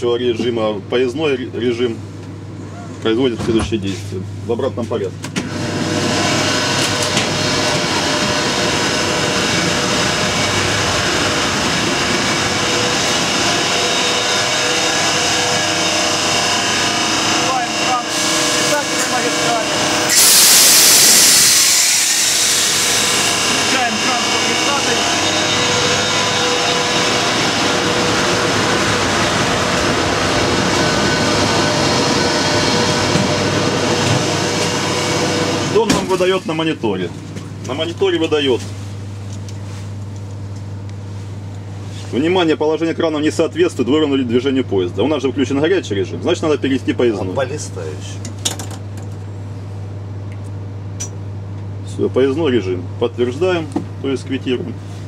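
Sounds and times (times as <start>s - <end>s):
locomotive machinery whirring: 5.3s - 36.4s.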